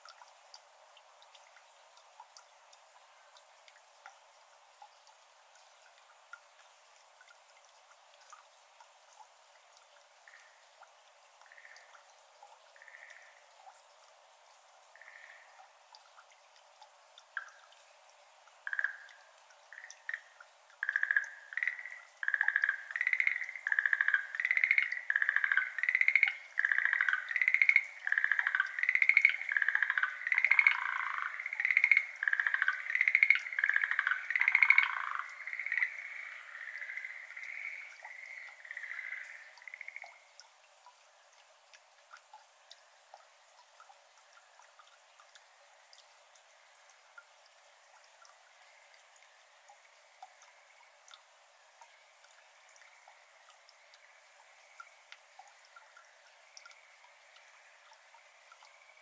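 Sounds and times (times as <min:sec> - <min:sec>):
faint water drips: 0:00.0 - 0:59.0
frog trilled calls: 0:18.7 - 0:19.2, 0:19.8 - 0:40.2.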